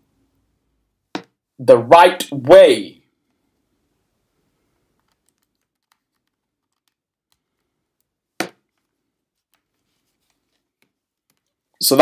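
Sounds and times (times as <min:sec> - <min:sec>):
camera and cable handling: 0:04.9 - 0:11.7.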